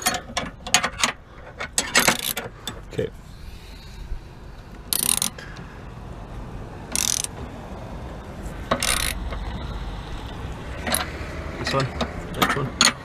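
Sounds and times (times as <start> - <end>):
socket ratchet clicking: 1.9 - 2.4, 4.9 - 5.4, 6.9 - 7.4, 8.7 - 9.2, 10.8 - 11.1.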